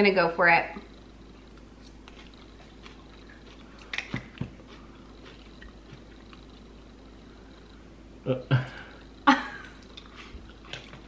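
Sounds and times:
chewing food: 1.4s - 7.3s, 9.7s - 11.0s.

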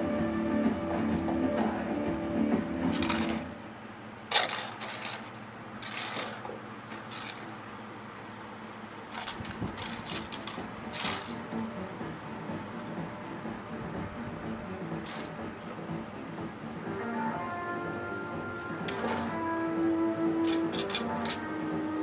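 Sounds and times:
balls rattling against wood: 2.9s - 3.4s, 4.3s - 7.6s, 8.9s - 11.5s, 15.0s - 15.4s, 20.4s - 21.4s.

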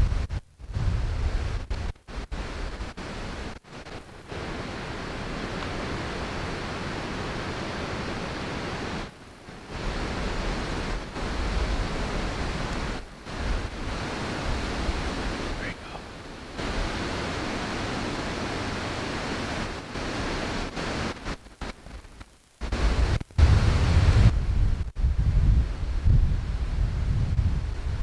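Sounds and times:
steady rushing hiss: 0.0s - 28.0s.

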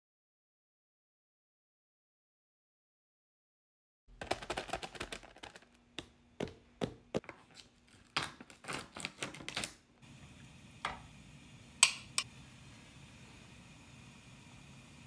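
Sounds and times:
plastic packaging crinkling: 4.2s - 5.8s, 7.2s - 9.9s.

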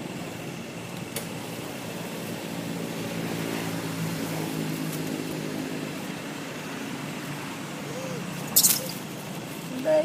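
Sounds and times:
motor engine droning: 0.0s - 10.0s.

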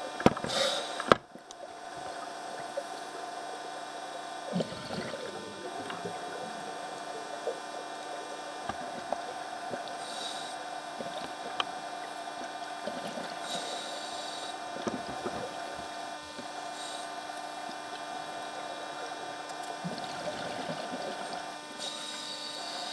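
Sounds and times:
steady underwater hum: 0.0s - 22.9s
regulator breathing hiss: 0.4s - 1.2s, 9.8s - 12.2s, 13.2s - 17.5s, 21.8s - 22.9s.

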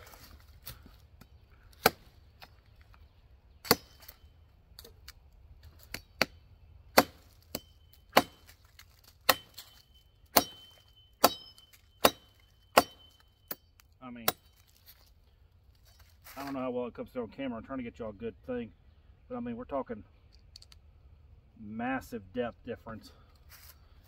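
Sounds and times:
machete chopping log: 1.8s - 2.1s, 3.6s - 4.2s, 5.9s - 13.6s
blade metallic ring: 9.3s - 13.6s.

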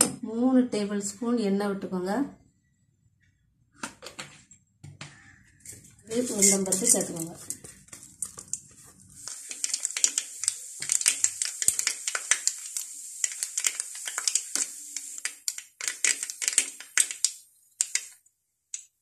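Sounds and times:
seeds spluttering in hot oil: 5.6s - 19.0s.

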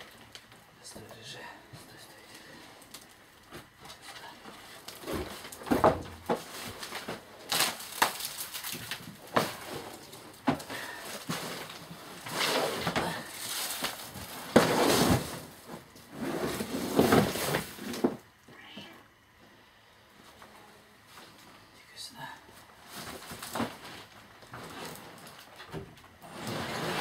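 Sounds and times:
mat rustling and scraping: 3.6s - 18.2s, 22.7s - 27.0s.

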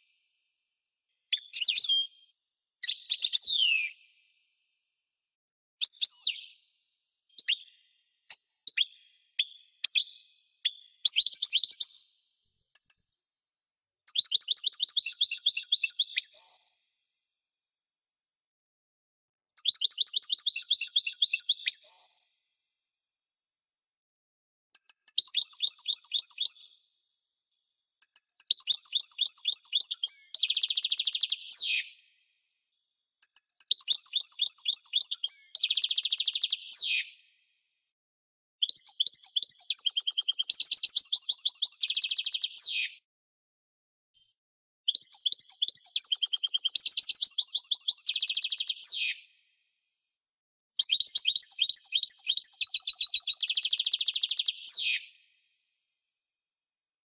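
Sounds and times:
goldfinch twittering song: 38.6s - 42.8s, 44.9s - 49.0s.

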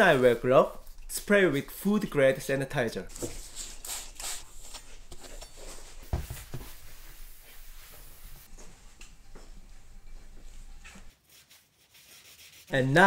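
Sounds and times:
paper towel wiping: 6.0s - 8.5s, 10.7s - 13.0s.

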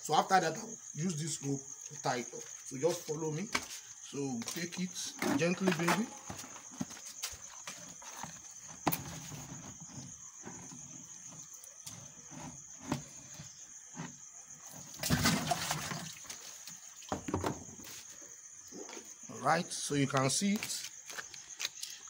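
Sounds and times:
water sloshing and splashing: 14.6s - 17.4s.

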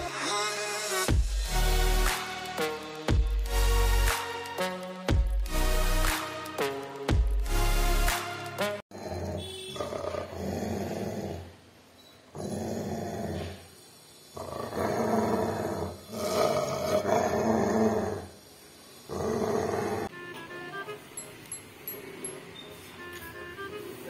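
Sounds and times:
dog growling: 8.9s - 11.6s, 12.4s - 13.6s, 14.4s - 18.4s, 19.1s - 20.1s.

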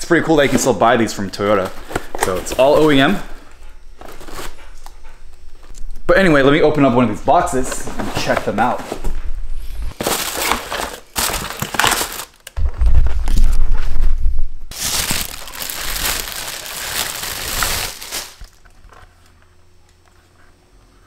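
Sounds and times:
cardboard and plastic crinkling: 0.4s - 3.2s, 4.0s - 4.6s, 7.5s - 9.2s, 9.9s - 13.9s, 14.7s - 19.2s.

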